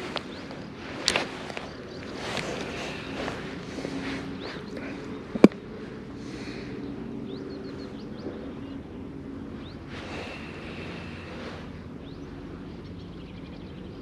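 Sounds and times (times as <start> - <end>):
bird chirps: 6.4 - 8.9, 9.5 - 14.0.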